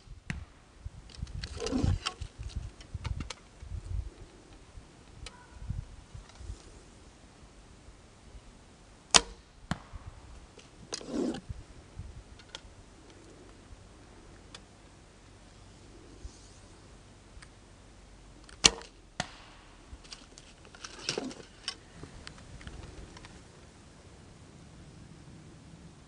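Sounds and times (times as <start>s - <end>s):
soft rustles and clicks: 1.0s - 5.4s, 19.9s - 23.7s
bowstring snap: 9.1s - 10.0s.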